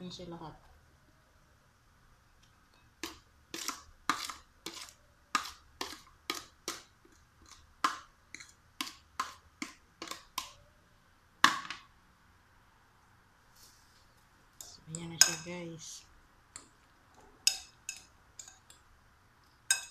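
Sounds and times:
fork scraping on plate: 0:03.5 - 0:06.5.

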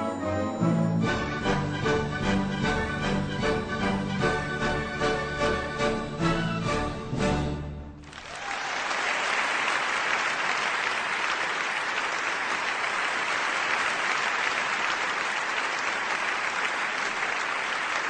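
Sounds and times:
orchestra final notes: 0:00.0 - 0:07.8
audience applause: 0:08.0 - 0:18.0.

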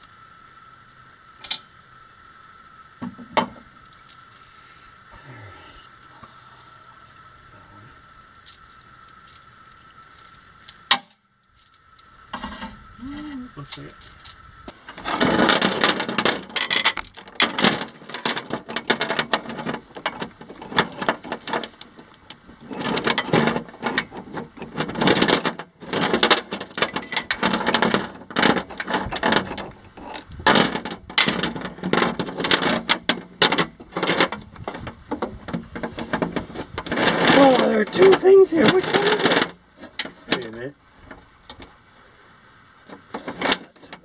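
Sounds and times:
metal chains clinking and rattling: 0:13.6 - 0:14.4, 0:15.1 - 0:21.6, 0:22.7 - 0:34.4.

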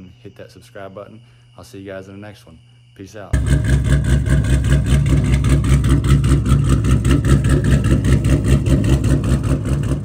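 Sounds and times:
car engine idling with lope: 0:03.4 - 0:10.0.

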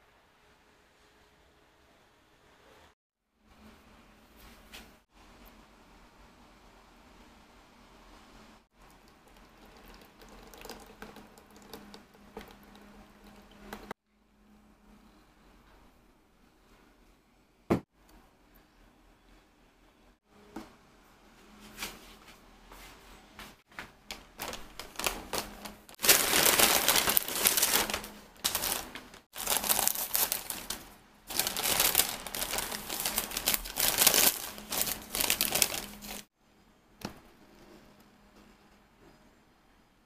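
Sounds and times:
paper wrapper crinkling: 0:24.1 - 0:36.3.

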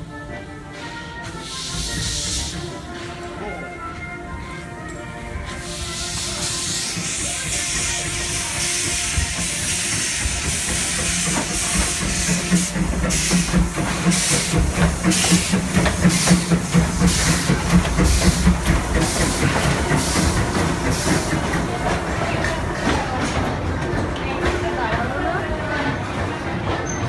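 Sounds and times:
steam hissing: 0:00.7 - 0:03.5, 0:05.5 - 0:22.2
steam locomotive chuffing: 0:00.7 - 0:03.6, 0:05.2 - 0:27.0.

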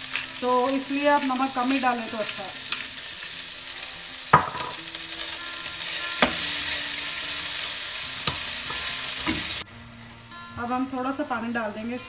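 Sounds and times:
vegetables sizzling in hot oil: 0:00.0 - 0:11.8
metal spatula knocking on pan: 0:04.4 - 0:04.8, 0:06.2 - 0:06.5.

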